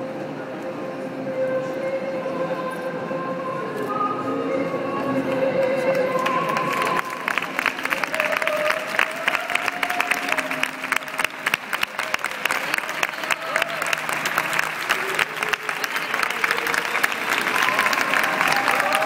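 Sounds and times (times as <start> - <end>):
audience applauding: 5.8 - 19.0.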